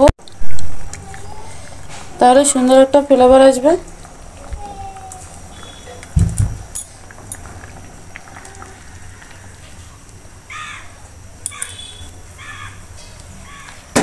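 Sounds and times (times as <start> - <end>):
food simmering in a pan: 3.5 - 12.3
crow cawing: 10.5 - 11.0, 12.4 - 12.8, 13.4 - 13.8.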